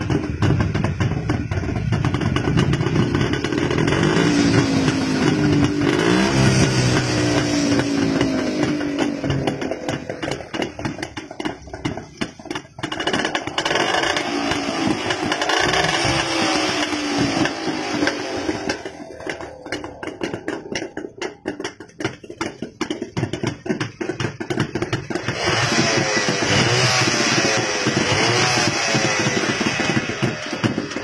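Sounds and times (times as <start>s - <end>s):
two-stroke motorcycle engine revving: 0.0s - 31.0s.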